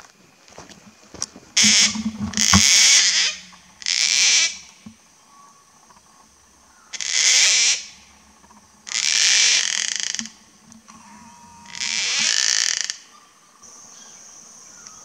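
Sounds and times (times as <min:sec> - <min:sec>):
cockatoo harsh creaky calls: 0:01.6 - 0:04.7, 0:06.8 - 0:08.0, 0:08.8 - 0:13.3.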